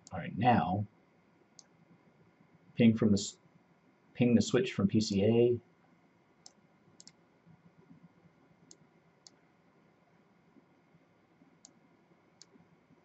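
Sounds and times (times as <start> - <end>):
computer mouse clicks: 6.4 - 7.2, 8.6 - 9.4, 11.6 - 11.8, 12.4 - 12.7.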